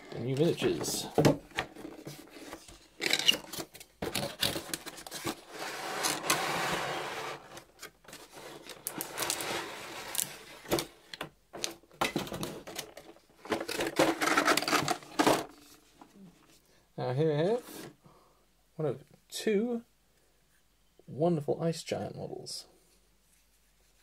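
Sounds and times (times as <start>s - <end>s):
cardboard sliding and rubbing: 5.0s - 10.8s.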